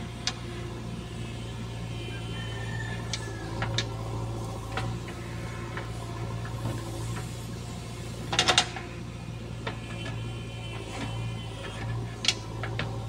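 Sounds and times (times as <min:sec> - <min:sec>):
diesel engine humming: 0:00.0 - 0:13.0
backhoe digging into soil: 0:03.5 - 0:09.0, 0:09.6 - 0:13.0.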